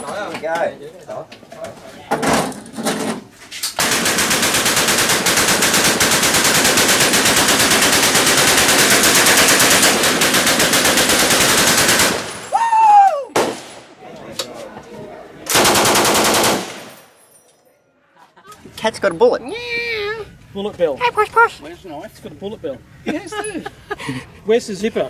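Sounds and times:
machine gun automatic fire: 3.8 - 12.4, 15.5 - 17.1
person whooping: 12.5 - 13.4.

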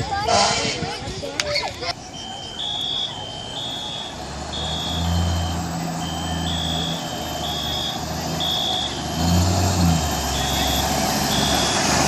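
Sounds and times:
fire engine diesel rumble: 0.0 - 12.0
high two-tone electronic alarm: 2.2 - 9.0, 10.2 - 11.8.

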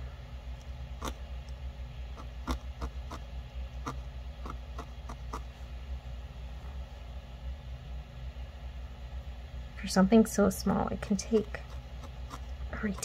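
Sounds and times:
steady low hum: 0.0 - 13.0
felting needle poking wool: 2.1 - 5.6, 11.2 - 13.0.

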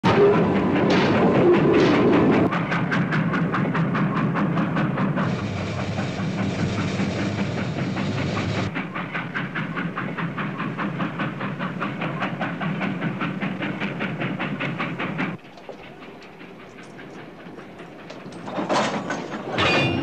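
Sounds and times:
locomotive exhaust chuffs: 0.0 - 20.0
steam locomotive rushing: 0.0 - 20.0.

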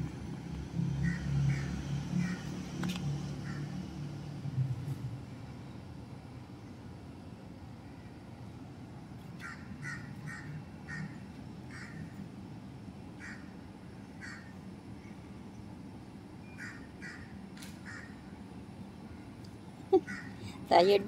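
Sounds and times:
bird harsh calls: 20.0 - 20.4.

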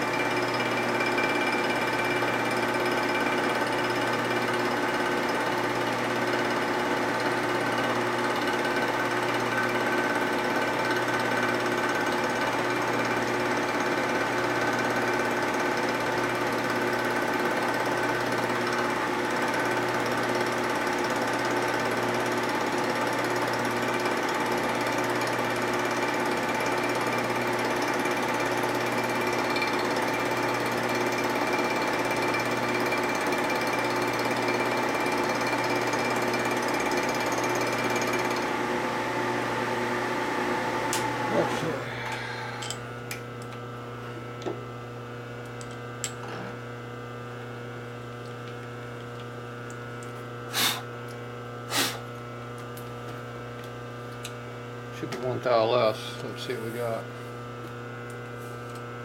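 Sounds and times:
milling machine whining: 0.0 - 16.6, 17.3 - 46.6.

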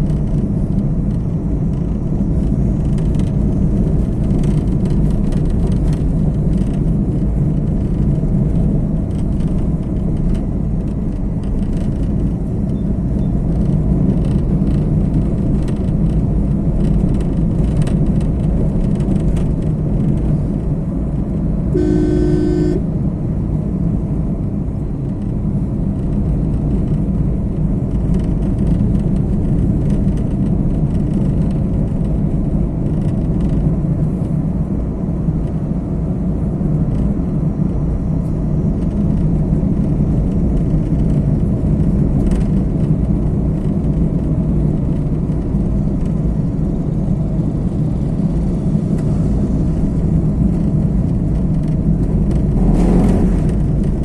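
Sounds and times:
car driving rumble: 0.0 - 54.0
car horn: 21.8 - 22.9.

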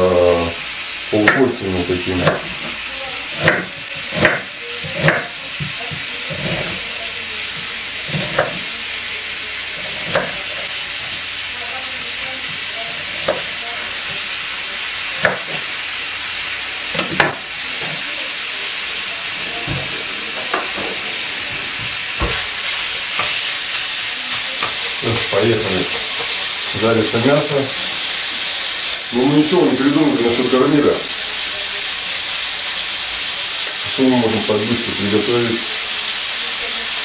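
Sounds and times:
meat sizzling in frying pan: 0.0 - 37.0
knife knocking on cutting board: 21.8 - 22.4.

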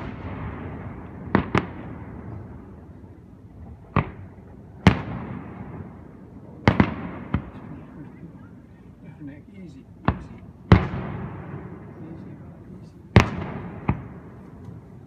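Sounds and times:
fireworks bursting: 0.0 - 7.7, 10.0 - 12.0, 13.1 - 15.0.

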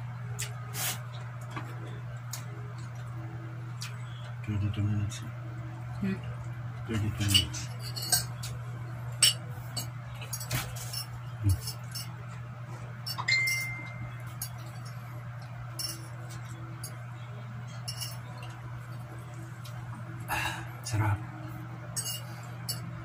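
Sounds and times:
low hum: 0.0 - 23.0
fork clinking on ceramic plates: 13.1 - 15.0, 15.7 - 17.0, 17.8 - 18.6, 21.9 - 22.9.

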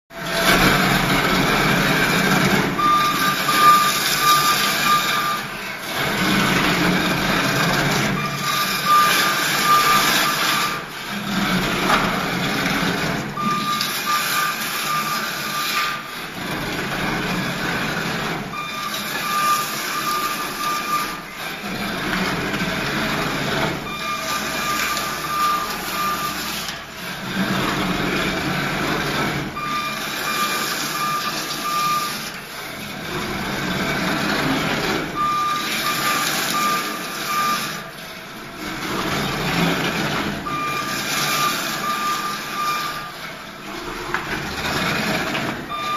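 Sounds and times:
floor stripper scraping gravel: 0.1 - 45.9
pulsing beeper: 2.6 - 5.6, 8.1 - 10.9, 13.4 - 15.9, 23.8 - 26.5, 29.6 - 32.2, 40.4 - 43.1.

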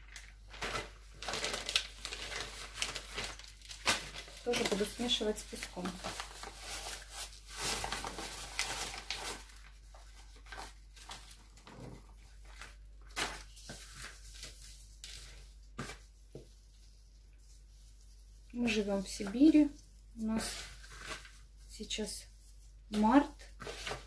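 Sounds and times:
plastic bag crinkling: 0.0 - 15.9.

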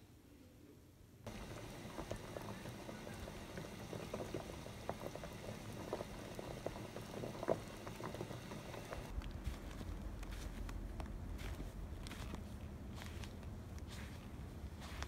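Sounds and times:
stew bubbling in a pot: 1.3 - 9.2.

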